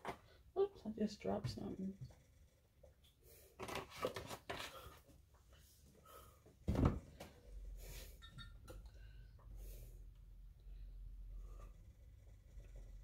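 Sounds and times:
loud thud: 0:06.7 - 0:07.0.

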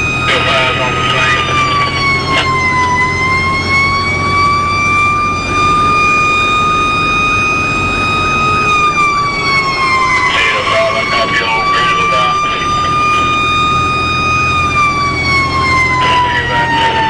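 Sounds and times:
fire truck siren wailing: 0:00.0 - 0:17.0
truck engine rumble: 0:00.0 - 0:17.0.

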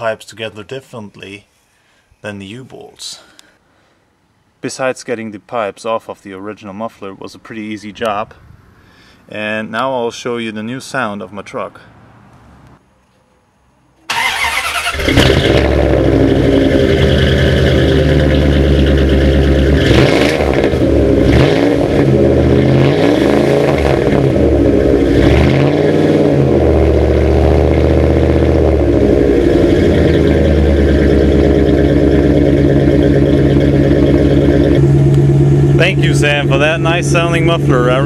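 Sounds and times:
truck engine revving and idling: 0:14.2 - 0:38.0.

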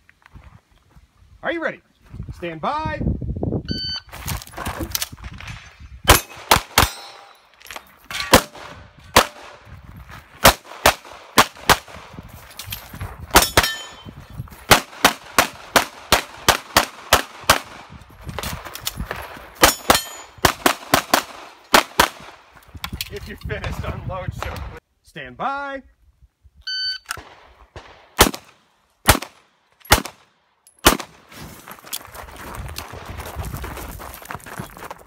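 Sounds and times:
steel targets clanging: 0:06.1 - 0:08.4, 0:13.4 - 0:14.1, 0:19.6 - 0:20.4
handgun shots: 0:13.3 - 0:14.0, 0:27.1 - 0:31.1.

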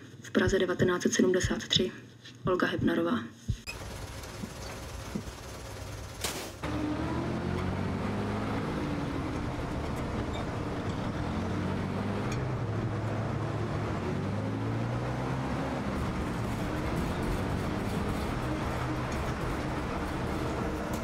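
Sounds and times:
truck driving over cobbles: 0:03.7 - 0:12.7
truck engine starting and running: 0:03.7 - 0:21.0.

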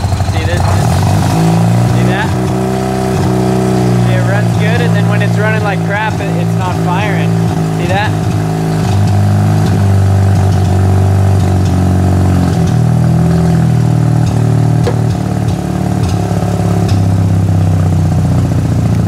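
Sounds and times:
engine idling rough and sputtering: 0:00.0 - 0:19.0.

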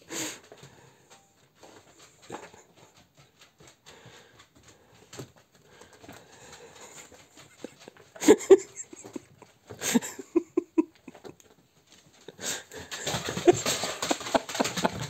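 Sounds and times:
dog claws scrabbling on floor: 0:11.0 - 0:15.0.

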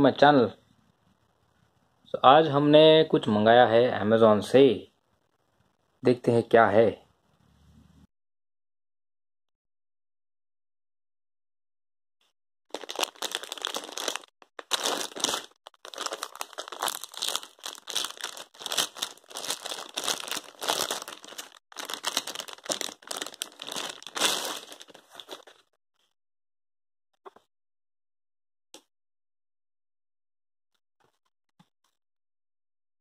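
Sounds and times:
plastic bag crinkling: 0:12.7 - 0:25.6.

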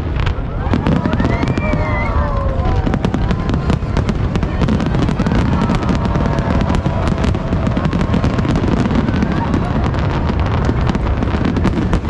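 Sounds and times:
firework cracks and pops: 0:00.0 - 0:12.0
low rumble of bursting shells: 0:00.0 - 0:12.0.

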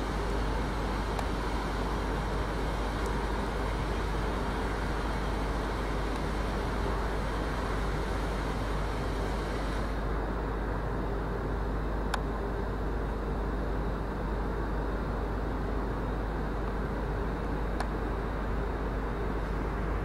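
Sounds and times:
background hiss: 0:00.0 - 0:10.5.

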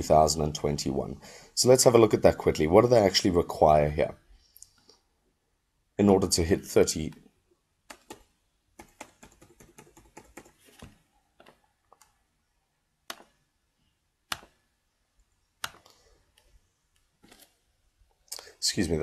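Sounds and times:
computer keyboard typing: 0:07.9 - 0:12.2, 0:13.1 - 0:13.4, 0:14.3 - 0:14.6, 0:15.6 - 0:16.0.

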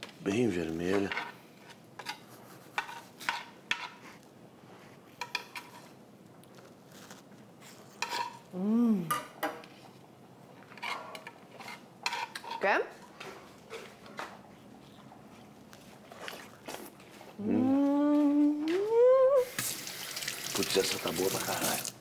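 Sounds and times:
person humming mm: 0:08.5 - 0:09.1, 0:17.4 - 0:19.5.

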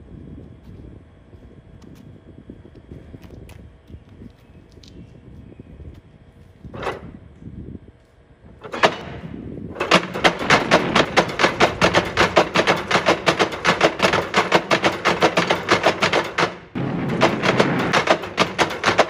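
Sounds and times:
wooden hammers clattering: 0:09.8 - 0:19.0.

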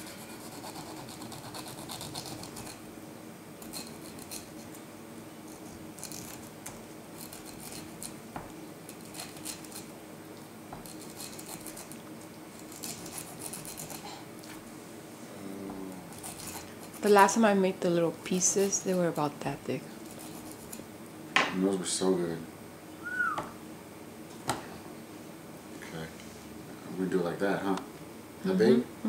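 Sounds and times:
knife sawing through pineapple skin: 0:00.0 - 0:02.8, 0:10.8 - 0:12.0, 0:12.6 - 0:14.2, 0:16.1 - 0:17.2.

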